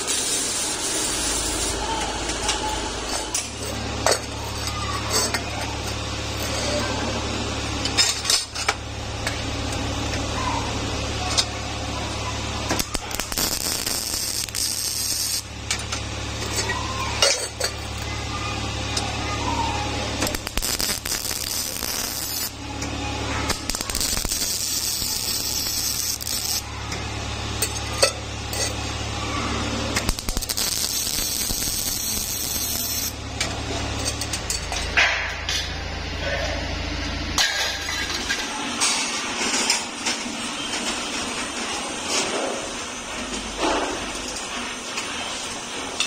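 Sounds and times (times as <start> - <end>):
welding arc crackling and hissing: 0.0 - 3.9, 11.7 - 16.7, 17.7 - 34.5.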